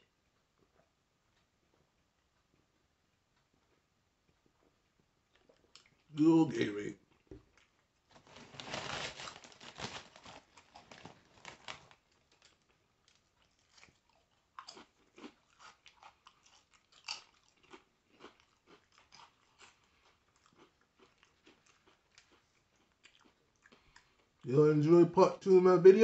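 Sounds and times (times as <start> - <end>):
chip crunching while chewed: 7.2 - 24.4.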